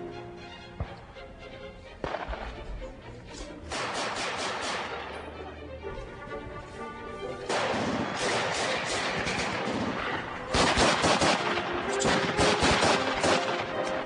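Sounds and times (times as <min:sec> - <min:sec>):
rapid gunfire: 0:03.7 - 0:05.0, 0:07.5 - 0:13.8.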